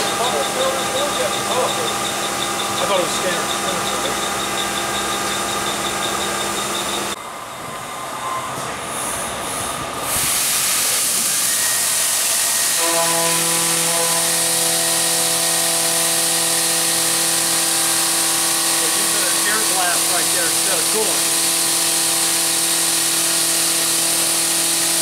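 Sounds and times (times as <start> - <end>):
milling machine hum and whine: 0.0 - 25.0
coolant spray hiss: 10.1 - 13.0.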